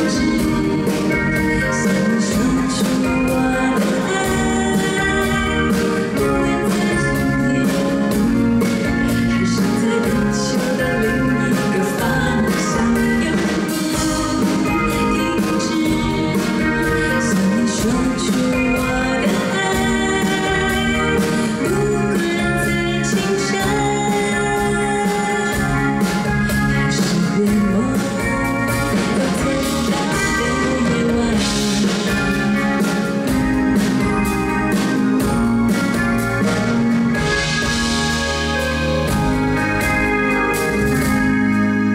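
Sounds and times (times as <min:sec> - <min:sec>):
woman singing into microphone: 0:00.0 - 0:33.9
drum kit beat: 0:00.0 - 0:41.9
guitar: 0:00.0 - 0:41.9
pop band playing: 0:00.0 - 0:41.9.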